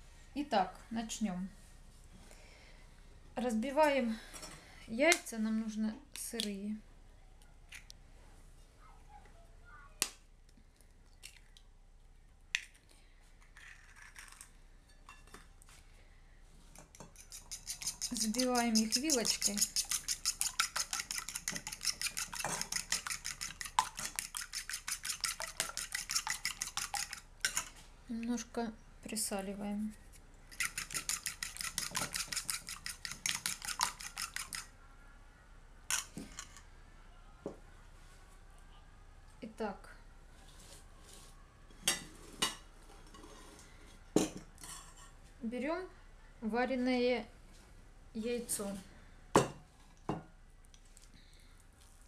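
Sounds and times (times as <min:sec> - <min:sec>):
fork beating eggs in bowl: 0:16.8 - 0:27.8, 0:30.5 - 0:34.7
eggs cracking on bowl rim: 0:30.6 - 0:34.7.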